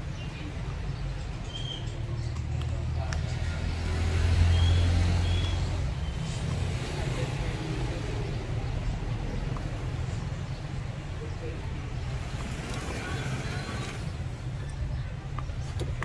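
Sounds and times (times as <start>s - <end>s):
passing vehicle rumble: 0.0s - 16.0s.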